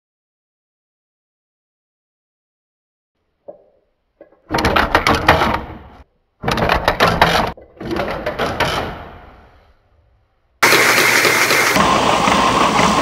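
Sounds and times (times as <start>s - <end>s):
stitching machine clattering: 10.6s - 13.0s.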